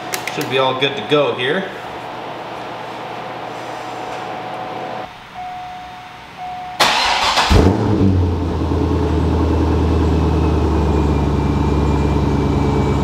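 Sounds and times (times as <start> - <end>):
short beeps: 5.4 - 6.9
car engine idling: 6.8 - 13.0.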